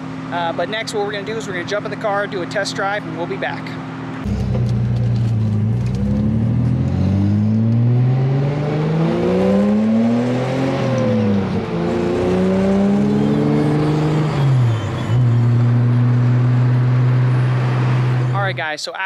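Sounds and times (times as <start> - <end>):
car engine accelerating through gears: 4.2 - 18.3.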